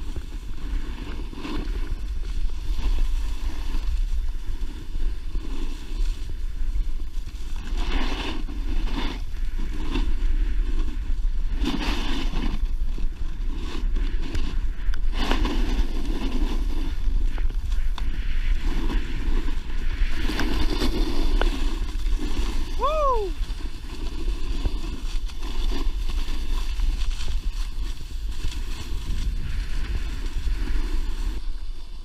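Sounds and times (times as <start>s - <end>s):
snowboard edge scraping snow: 0.0s - 32.0s
wind buffeting microphone: 0.0s - 32.0s.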